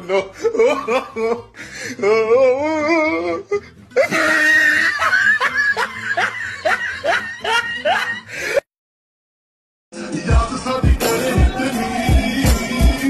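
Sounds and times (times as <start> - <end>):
comic laughter sound effect: 0.0 - 1.6, 3.2 - 8.6
music: 0.1 - 8.6, 9.9 - 13.0.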